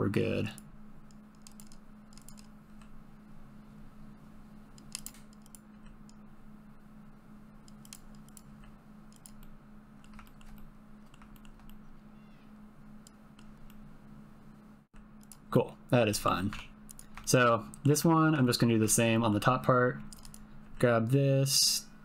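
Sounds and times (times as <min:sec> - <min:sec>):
steady low hum: 0:00.0 - 0:22.0
keyboard and mouse clicks: 0:00.5 - 0:03.0, 0:04.7 - 0:06.2, 0:07.6 - 0:11.8, 0:13.0 - 0:13.8, 0:15.0 - 0:15.5, 0:16.4 - 0:17.8, 0:20.0 - 0:20.4.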